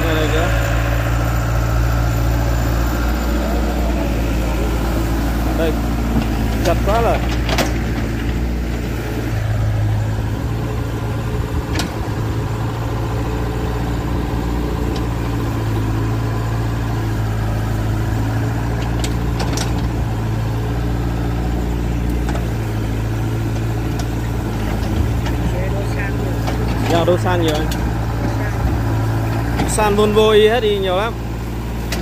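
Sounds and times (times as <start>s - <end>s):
excavator diesel engine running: 0.0s - 32.0s.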